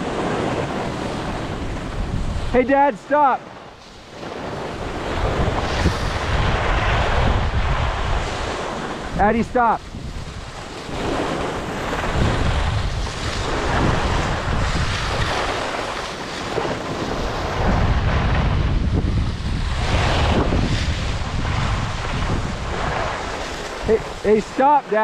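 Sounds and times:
wind rushing over microphone: 0.0 - 25.0
skis scraping on snow: 10.6 - 18.4, 19.2 - 25.0.

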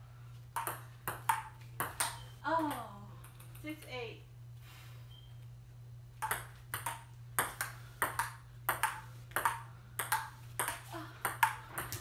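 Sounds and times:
steady low hum: 0.0 - 12.0
table tennis ball clicks: 0.6 - 3.7, 6.2 - 12.0.

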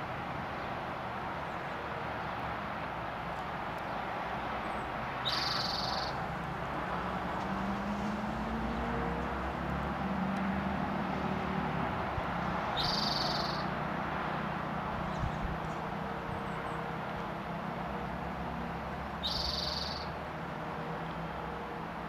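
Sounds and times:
bird singing: 4.6 - 6.2, 12.7 - 13.8, 15.0 - 17.0, 19.1 - 20.2.

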